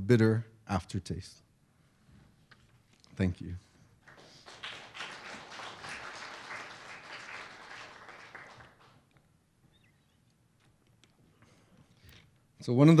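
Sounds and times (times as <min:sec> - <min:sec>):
audience applauding: 0:04.0 - 0:09.1.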